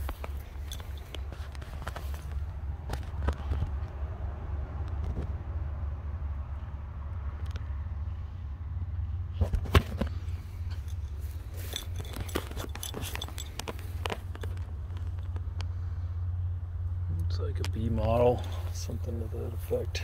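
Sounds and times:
footsteps and scuffing clicks: 0:00.0 - 0:03.8, 0:09.4 - 0:15.5.

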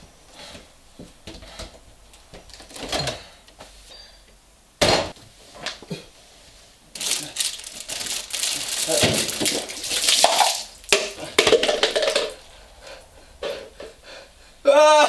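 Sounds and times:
person grunting: 0:14.6 - 0:15.0.

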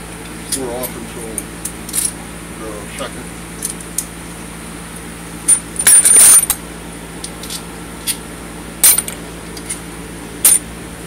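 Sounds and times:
metal bolts clinking on steel bench: 0:05.5 - 0:06.6, 0:08.8 - 0:09.8, 0:10.4 - 0:10.6.

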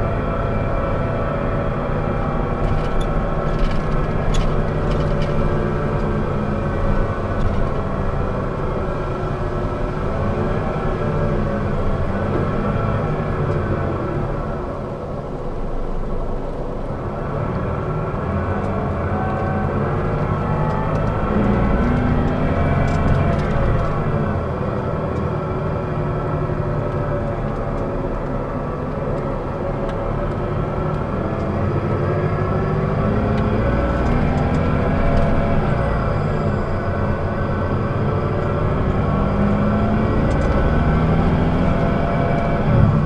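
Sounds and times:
diesel bus engine revving: 0:17.0 - 0:43.0.

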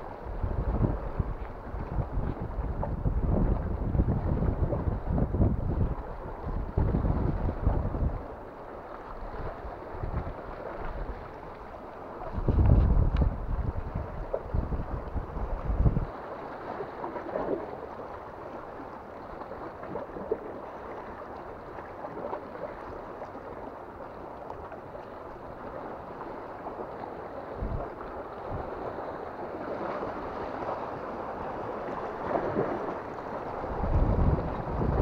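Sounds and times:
wind gust on microphone: 0:00.0 - 0:08.4, 0:09.2 - 0:11.4, 0:12.2 - 0:16.1, 0:27.5 - 0:28.9, 0:32.0 - 0:35.0
sea water splashing on rocks: 0:19.3 - 0:35.0.

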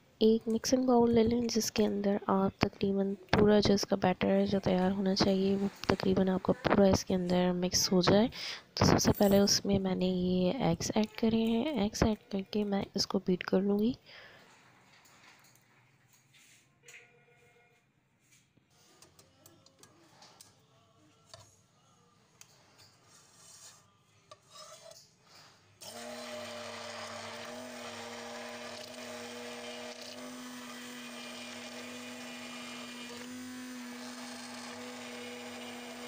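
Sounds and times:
hand blender running in pot: 0:05.3 - 0:06.3, 0:25.8 - 0:36.0.

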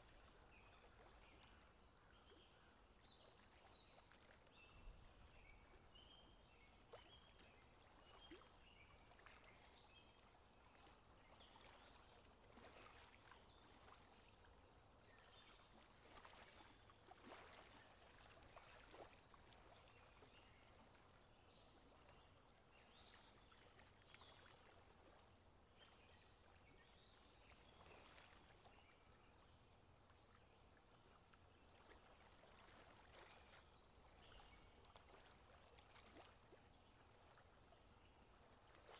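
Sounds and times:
moving river water: 0:00.0 - 0:38.9.

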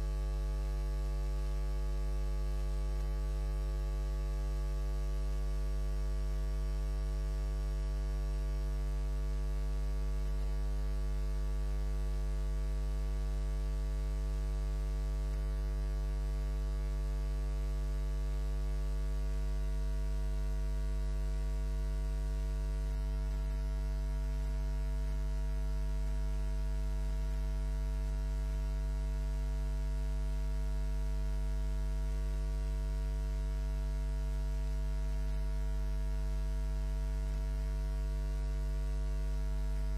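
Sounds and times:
electrical mains hum: 0:00.0 - 0:07.3.

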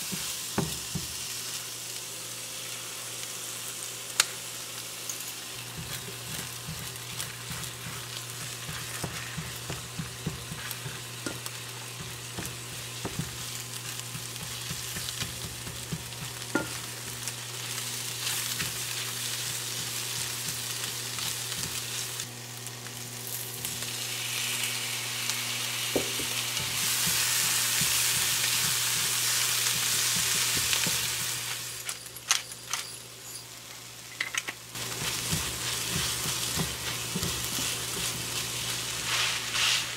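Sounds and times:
food sizzling in a frying pan: 0:00.0 - 0:32.0, 0:34.7 - 0:39.9
wooden spatula scraping a pan: 0:05.8 - 0:12.5, 0:34.8 - 0:39.9.

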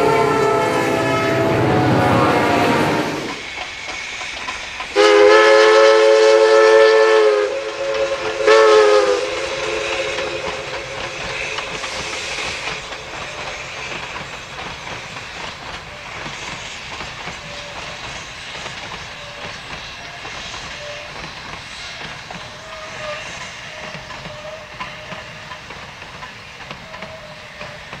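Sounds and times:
steam train whistle: 0:00.0 - 0:03.5, 0:04.9 - 0:14.5, 0:15.7 - 0:28.0
train running past: 0:00.0 - 0:28.0.

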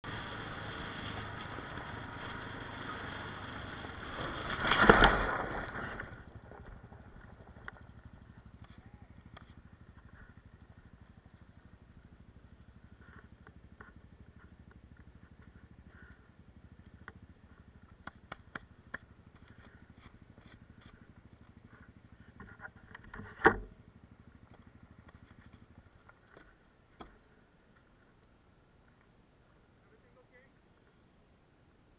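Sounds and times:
motorcycle skid and crash: 0:00.0 - 0:08.6
motorcycle riding on gravel: 0:00.0 - 0:31.0.

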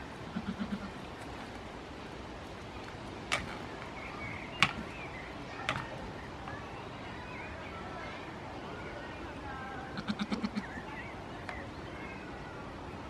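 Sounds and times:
goats butting heads: 0:02.8 - 0:03.9, 0:04.5 - 0:06.1.

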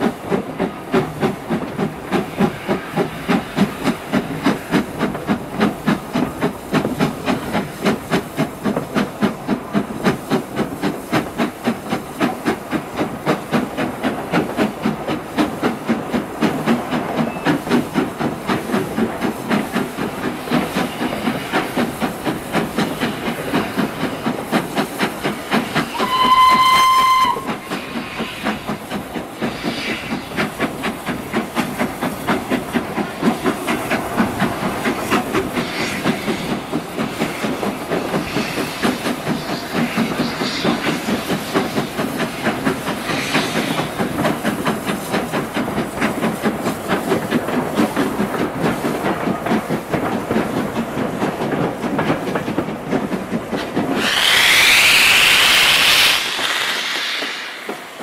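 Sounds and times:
steam locomotive exhaust beats: 0:00.0 - 0:58.0
train running on rails: 0:00.0 - 0:58.0
steam whistle: 0:25.9 - 0:27.7.

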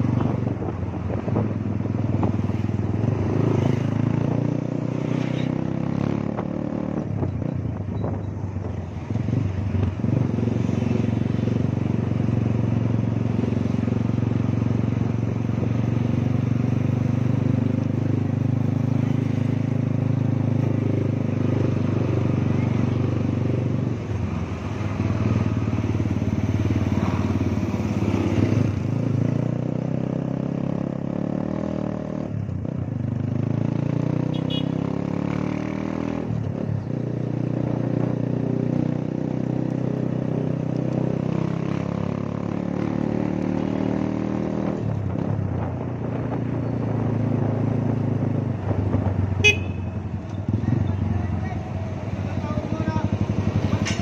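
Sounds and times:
motorcycle engine running: 0:46.6 - 0:54.0.

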